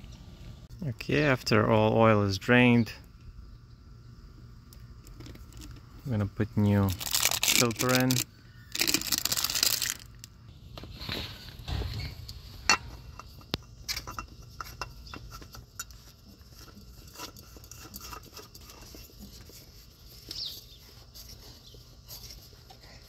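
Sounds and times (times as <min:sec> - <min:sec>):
faint handling noises: 0:04.7 - 0:23.0.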